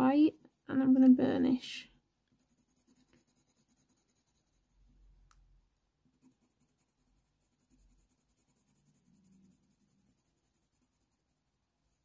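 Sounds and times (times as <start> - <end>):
coloured pencil scratching on paper: 0.0 - 5.2, 6.0 - 12.0.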